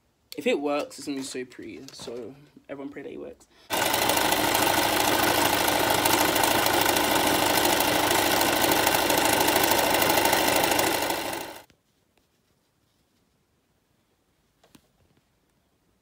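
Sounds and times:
sewing machine running: 3.7s - 11.7s.

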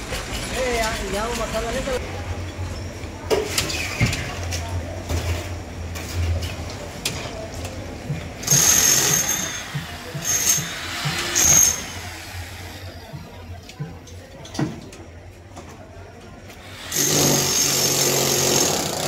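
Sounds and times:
angle grinder cutting steel: 8.5s - 12.9s.

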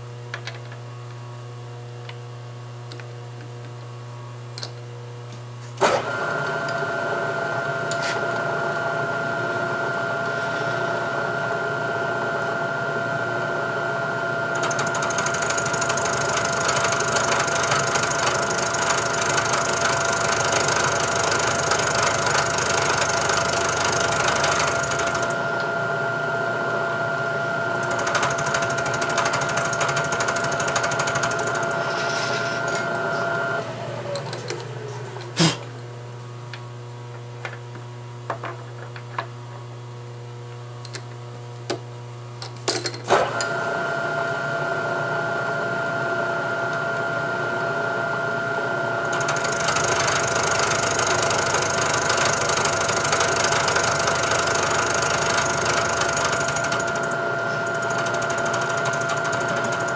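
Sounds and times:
milling machine spindle whine: 5.9s - 35.2s, 43.1s - 59.9s
end mill cutting metal: 13.7s - 34.7s, 48.2s - 59.9s.

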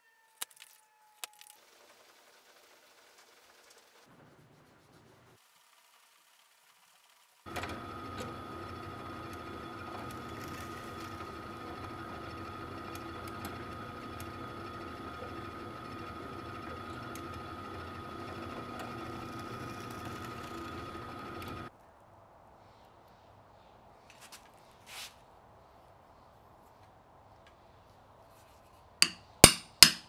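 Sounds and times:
drill press motor whine: 7.5s - 21.7s.

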